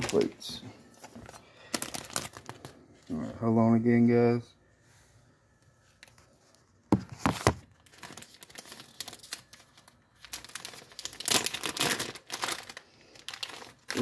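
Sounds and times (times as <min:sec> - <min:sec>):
plastic packaging crinkling: 0:00.0 - 0:03.0, 0:07.2 - 0:14.0.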